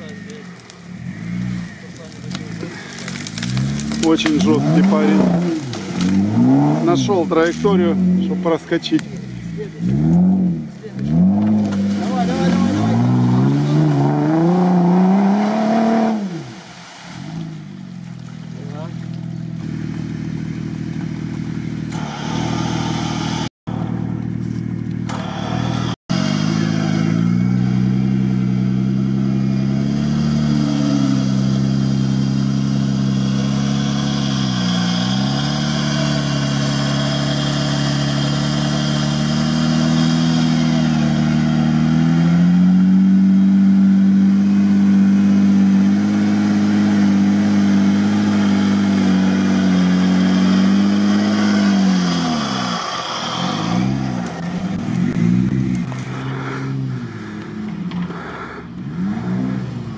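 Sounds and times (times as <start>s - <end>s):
engine running under load: 19.0s - 59.9s.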